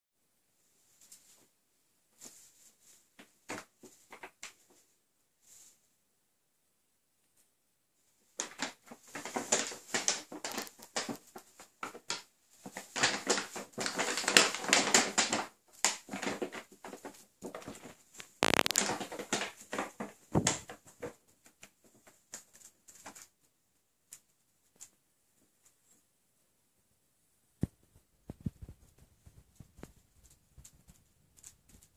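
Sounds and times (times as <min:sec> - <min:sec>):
paper bag rustling and crinkling: 0:08.4 - 0:21.1.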